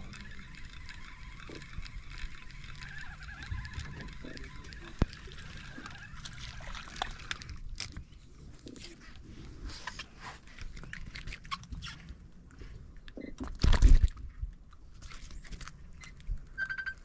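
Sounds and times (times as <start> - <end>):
fish handling clicks and rustles: 0.0 - 17.0.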